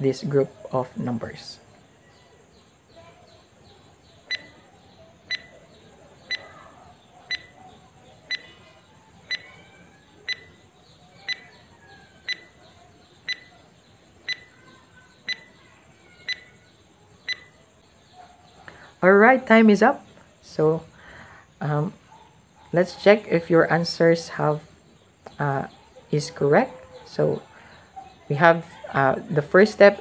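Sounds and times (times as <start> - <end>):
faint birds chirping: 0.0 - 30.0
short electronic beeps: 5.3 - 5.6, 7.3 - 7.6, 8.3 - 8.5, 9.3 - 9.5, 13.3 - 13.5, 17.3 - 17.5.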